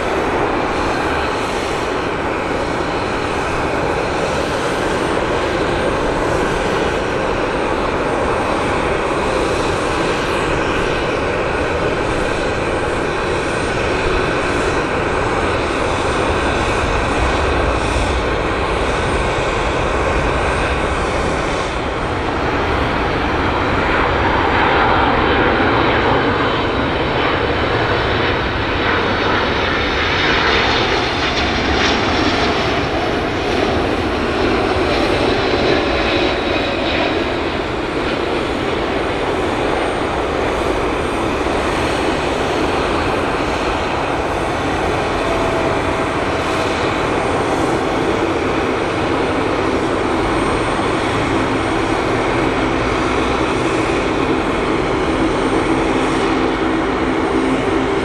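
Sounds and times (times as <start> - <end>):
jet engines roaring: 0.0 - 58.0.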